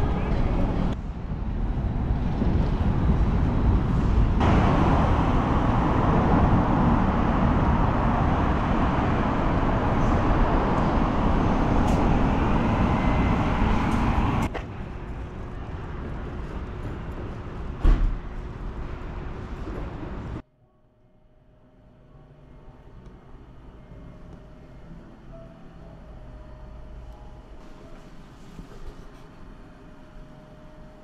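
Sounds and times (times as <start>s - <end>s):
city street traffic: 0.0s - 20.4s, 21.8s - 31.0s.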